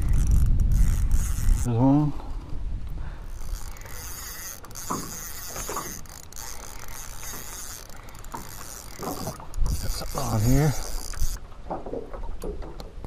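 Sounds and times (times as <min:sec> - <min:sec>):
reel squeaks: 0:00.0 - 0:01.8, 0:03.2 - 0:11.5
fishing reel gears whirring: 0:00.0 - 0:02.2, 0:03.2 - 0:11.5.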